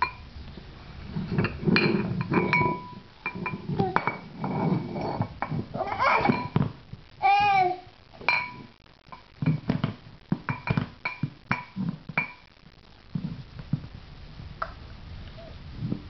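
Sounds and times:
dog bowls knocking on hard floor: 0:08.2 - 0:12.4.

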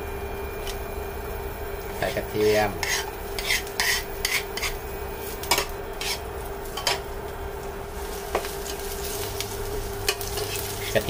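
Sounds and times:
steady hum: 0:00.0 - 0:11.0
spatula scraping a frying pan: 0:02.7 - 0:04.8, 0:05.4 - 0:07.0, 0:07.9 - 0:11.0.

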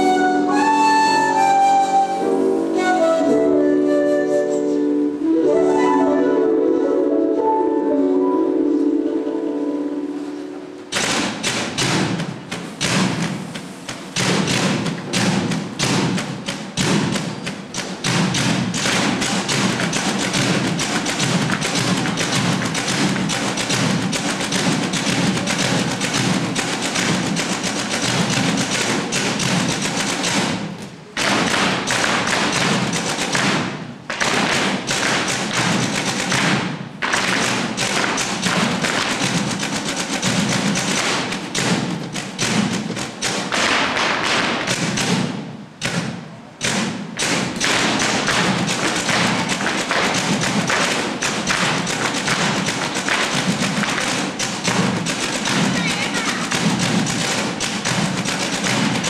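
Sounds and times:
music: 0:00.0 - 0:12.2
heel and toe stamps on stage floor: 0:10.9 - 0:59.0.

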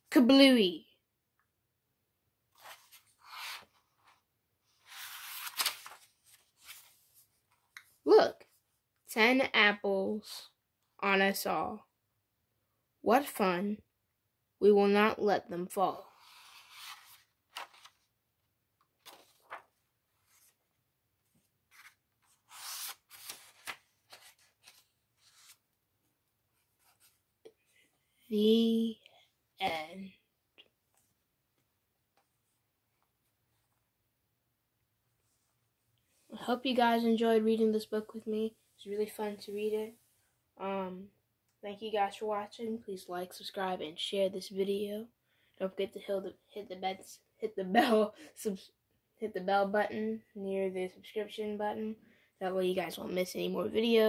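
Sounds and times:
book page turning: 0:02.5 - 0:07.9, 0:16.1 - 0:18.1, 0:18.8 - 0:20.8, 0:21.4 - 0:25.7
hands rubbing on paper: 0:21.7 - 0:25.6.

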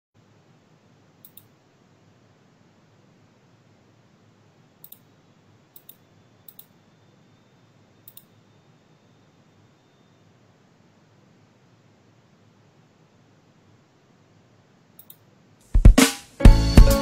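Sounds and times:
low steady hiss: 0:00.2 - 0:17.0
faint sharp double clicks: 0:01.2 - 0:01.5, 0:04.8 - 0:05.1, 0:05.8 - 0:06.8, 0:08.0 - 0:08.3, 0:15.0 - 0:15.2.

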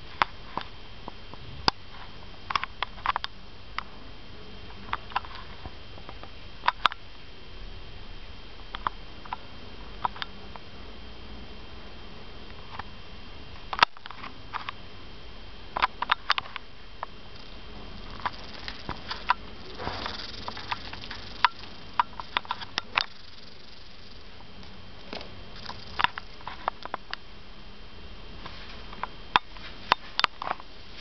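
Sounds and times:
rustling: 0:17.3 - 0:26.9.

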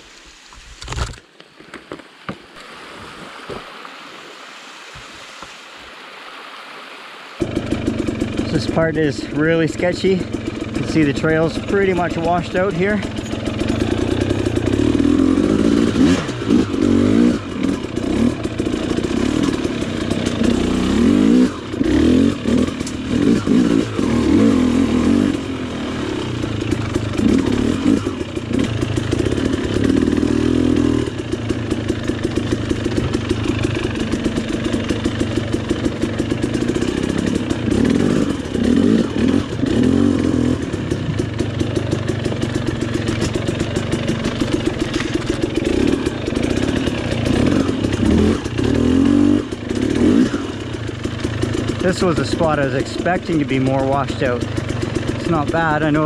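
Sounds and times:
dirt bike engine revving: 0:07.4 - 0:56.0.

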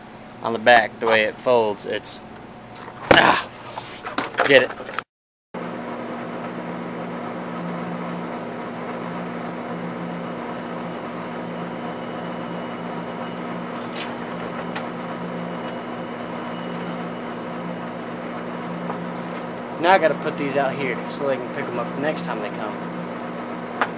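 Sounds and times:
low machine hum: 0:05.6 - 0:23.9.

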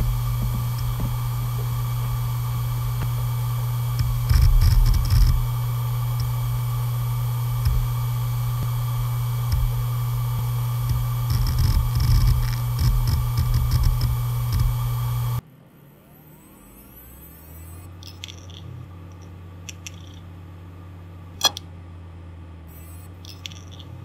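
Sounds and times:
hard drive clicking and scratching: 0:00.0 - 0:15.4
hard drive hum with whine: 0:00.0 - 0:24.0.

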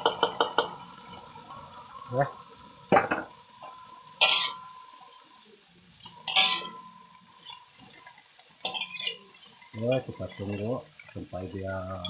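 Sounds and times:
metal spatula scraping a wok: 0:03.6 - 0:05.4, 0:06.0 - 0:11.2.

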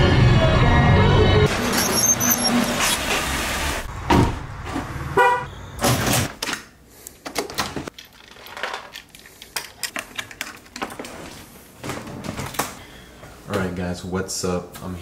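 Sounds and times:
thump: 0:04.1 - 0:04.4
car horn chirp: 0:05.2 - 0:05.8.

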